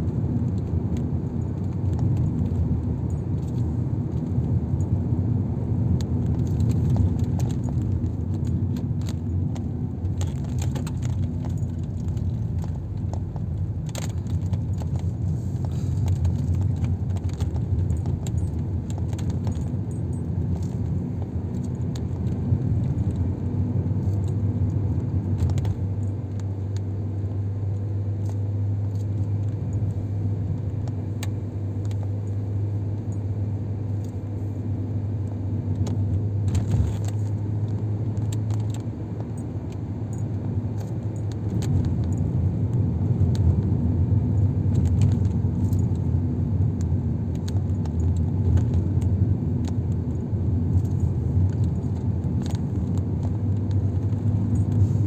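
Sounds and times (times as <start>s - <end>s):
car engine hum and road rumble: 0.0s - 55.0s
interior rattles and clicks: 0.0s - 55.0s.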